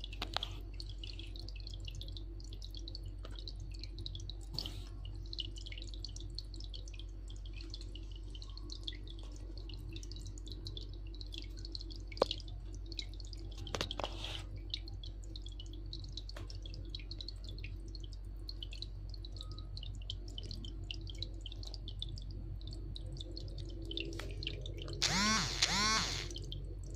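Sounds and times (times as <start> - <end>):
low steady hum: 0.0 - 26.9
sponge filter bubbling and dripping: 0.0 - 26.9
sharp clicks: 25.0 - 26.5.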